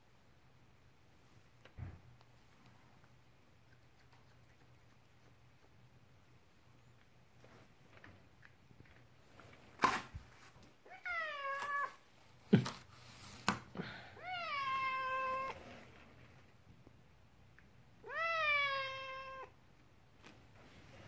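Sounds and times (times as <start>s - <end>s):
cat meowing: 10.9s - 12.0s, 14.2s - 15.6s, 18.0s - 19.6s.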